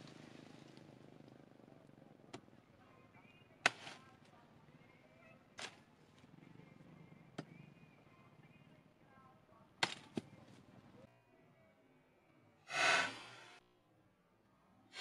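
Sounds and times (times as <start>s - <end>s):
knife chopping wood: 9.8s - 10.3s.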